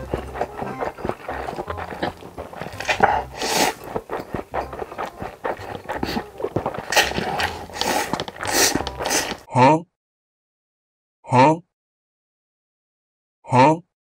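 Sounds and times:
loud noodle slurps: 0:00.0 - 0:09.5
wet smacking chewing: 0:00.0 - 0:09.5.

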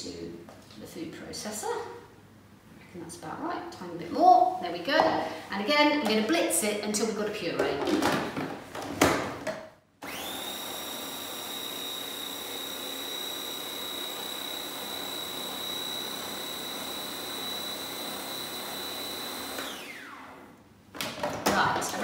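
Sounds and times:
food processor motor whine: 0:10.0 - 0:20.6.

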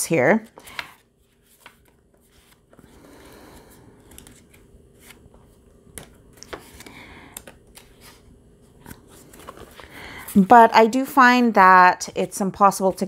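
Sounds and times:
paper pages rustling: 0:00.4 - 0:10.5.

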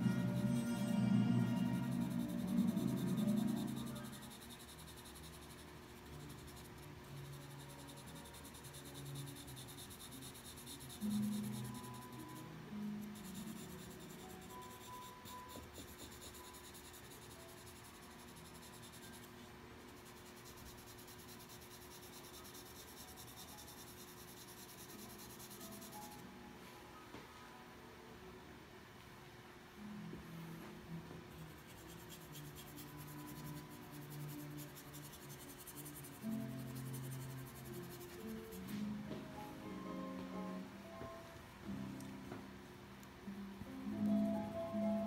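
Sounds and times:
charcoal pencil scratching paper: 0:00.0 - 0:26.2, 0:31.3 - 0:39.0
faint background music: 0:00.0 - 0:45.0.

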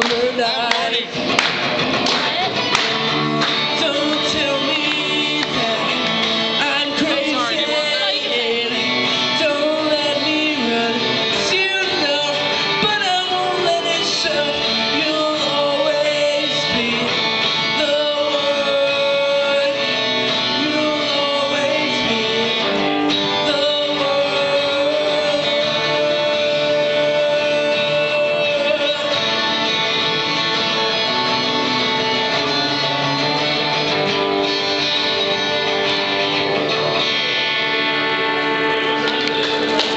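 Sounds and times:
acoustic guitar strummed and picked: 0:00.0 - 0:39.9
man singing long notes: 0:03.6 - 0:29.7.

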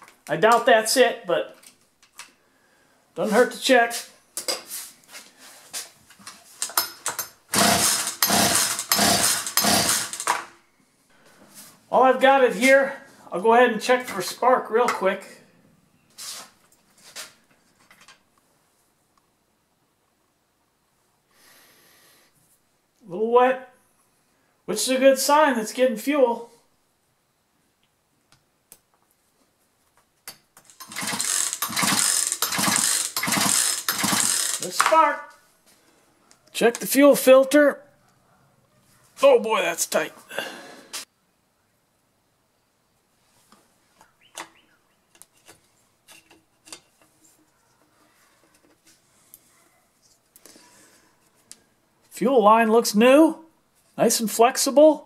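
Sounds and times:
chainsaw engine cranking: 0:06.6 - 0:10.5, 0:30.6 - 0:35.1.

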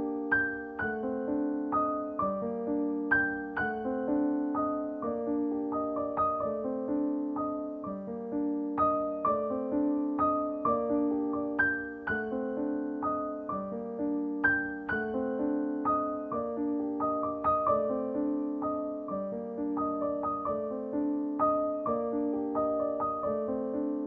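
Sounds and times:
gentle piano music: 0:00.0 - 0:24.0.

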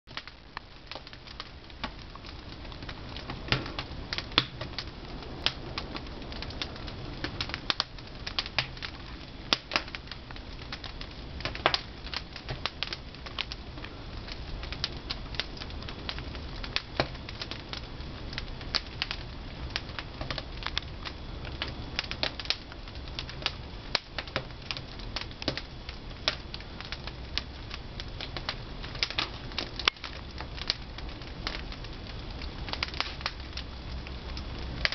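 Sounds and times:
wood fire crackling and popping: 0:00.1 - 0:34.9
low steady rumble: 0:00.2 - 0:34.9.

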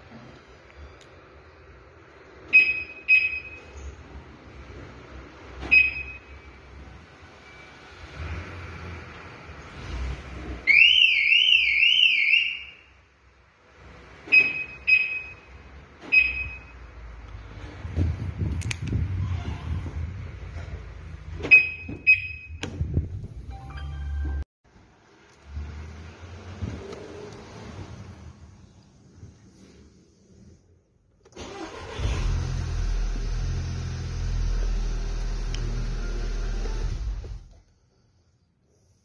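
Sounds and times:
car alarm chirps: 0:02.5 - 0:03.8, 0:10.7 - 0:13.0, 0:14.3 - 0:15.5, 0:21.5 - 0:22.6
warbling car alarm: 0:10.7 - 0:12.8.

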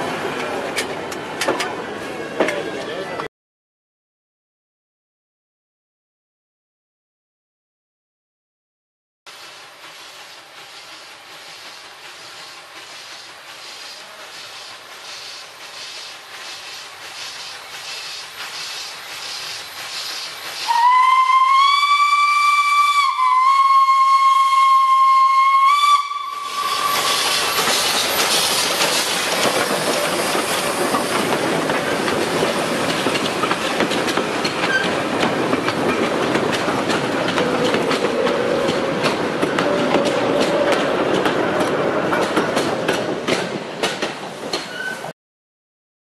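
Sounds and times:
hiss of steam and exhaust: 0:09.3 - 0:21.4, 0:26.3 - 0:34.8
steam locomotive whistle: 0:20.6 - 0:27.5
train wheels clattering on rails: 0:26.6 - 0:45.1.

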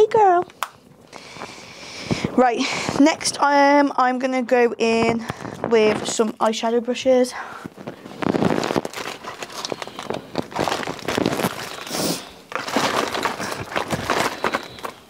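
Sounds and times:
makeup bag crinkling rustle: 0:07.6 - 0:15.0.

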